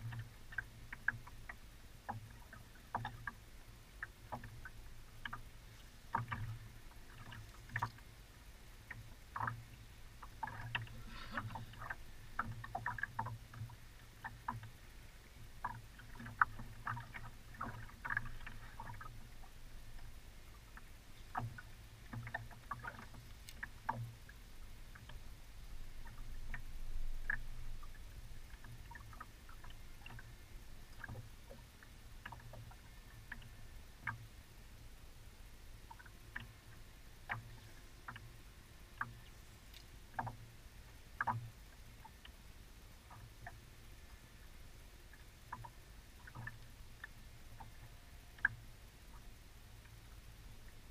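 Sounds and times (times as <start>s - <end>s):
water slapping metal boat hull: 4.0s - 8.1s, 8.8s - 14.8s, 15.6s - 20.1s, 20.7s - 24.3s.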